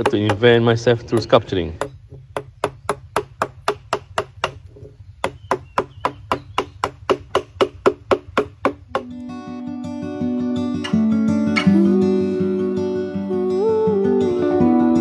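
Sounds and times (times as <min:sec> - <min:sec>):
mallet knocking on carving gouge: 0:00.0 - 0:09.1
acoustic guitar music: 0:08.1 - 0:15.0.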